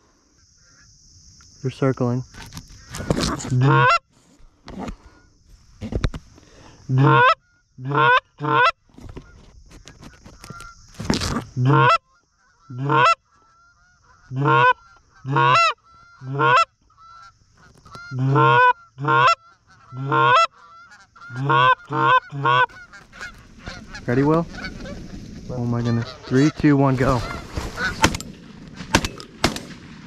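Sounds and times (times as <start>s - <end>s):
flock of geese honking: 2.7s - 4.1s, 6.6s - 10.9s, 11.6s - 28.2s
goose call honks: 2.8s - 4.0s, 6.9s - 9.3s, 11.4s - 25.0s, 25.7s - 28.2s
rustling: 22.7s - 30.0s.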